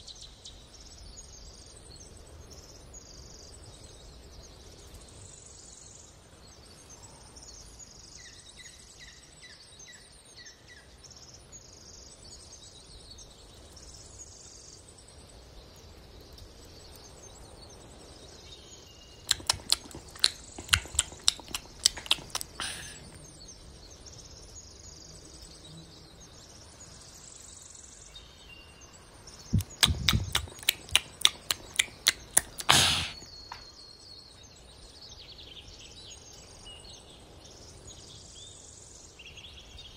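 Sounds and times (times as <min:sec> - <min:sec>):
cat chewing leaves: 0:19.3 - 0:23.1, 0:29.4 - 0:33.2.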